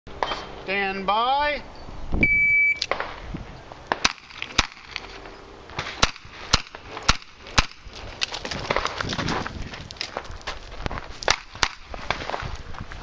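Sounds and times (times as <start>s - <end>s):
handgun shots: 3.9s - 5.0s, 5.8s - 7.8s, 11.3s - 12.2s.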